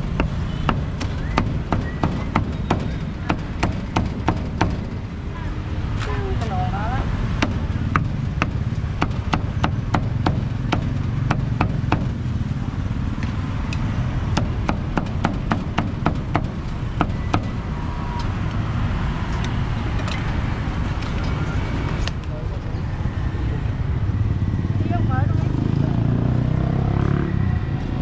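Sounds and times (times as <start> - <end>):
cleaver chopping meat on a block: 7.4 - 12.1.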